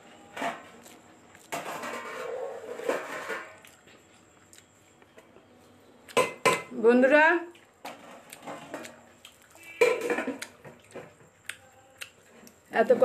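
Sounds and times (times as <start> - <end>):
person chewing food: 0.8 - 1.5, 3.6 - 6.2, 7.5 - 12.7.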